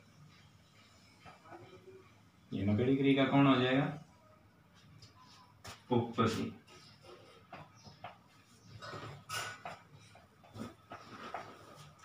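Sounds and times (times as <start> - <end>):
marker squeaking on whiteboard: 6.7 - 12.0.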